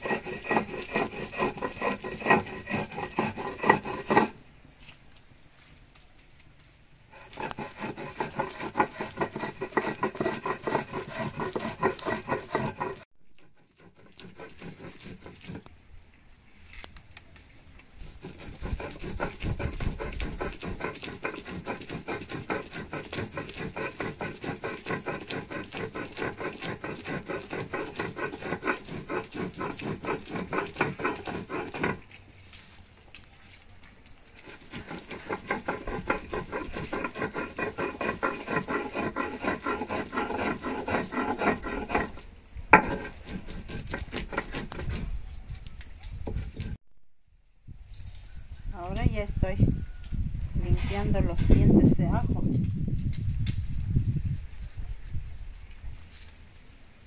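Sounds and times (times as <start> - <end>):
stone grinder scraping on stone: 0.0 - 4.4, 7.1 - 15.7, 18.0 - 32.2, 34.4 - 45.3, 46.2 - 46.8.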